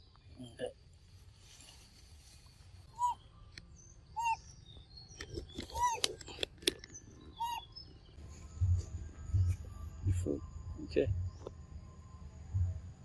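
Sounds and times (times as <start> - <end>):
bird calling: 2.8 - 3.4, 4.1 - 4.6, 5.2 - 7.9.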